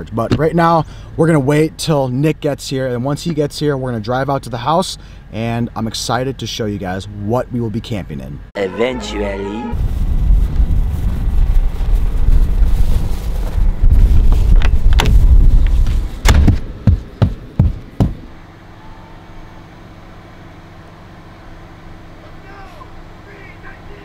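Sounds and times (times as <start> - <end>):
low rumble: 8.6 - 16.2.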